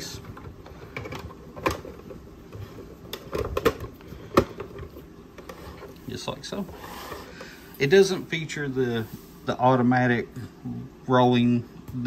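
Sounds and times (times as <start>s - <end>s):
plastic panels clicking and knocking: 0.2s - 2.2s, 3.1s - 5.5s.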